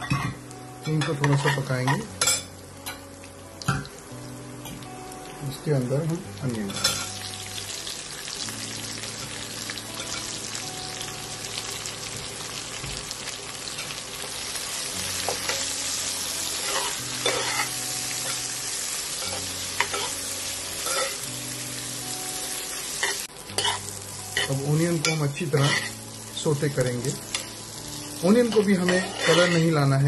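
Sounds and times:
onion sizzling in hot oil: 0.0 - 30.0
metal spoon scraping and knocking pot: 28.8 - 29.7.

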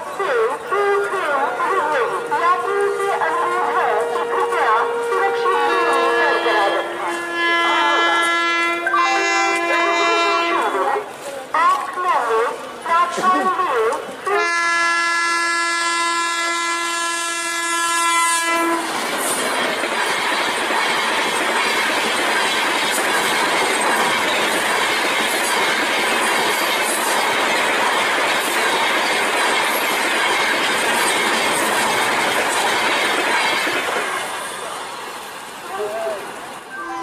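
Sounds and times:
locomotive horn blast: 1.7 - 10.9, 14.3 - 18.9
train wheels clattering: 18.6 - 34.7.

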